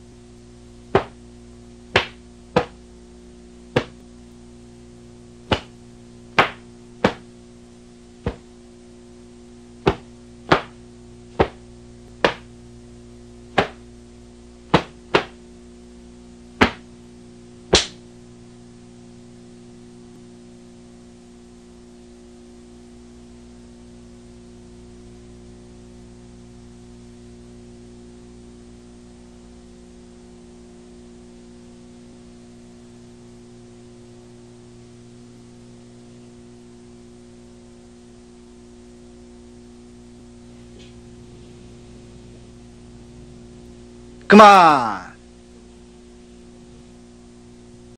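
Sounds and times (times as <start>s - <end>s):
steady electrical hum: 0.0s - 47.9s
uniform snapping cracks: 17.7s - 18.0s.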